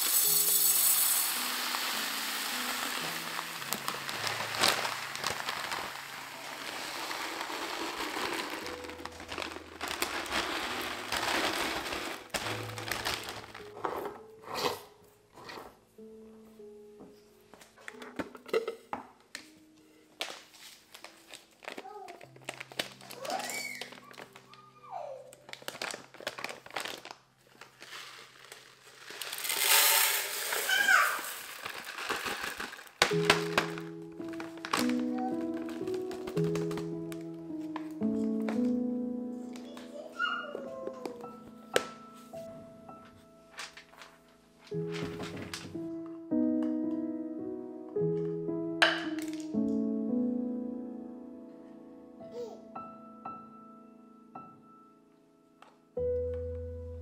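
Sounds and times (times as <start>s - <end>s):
grains pouring into glass jar: 0.0s - 13.6s, 27.8s - 36.8s
plastic bag crinkling: 0.0s - 13.9s, 20.3s - 38.8s, 43.5s - 45.9s.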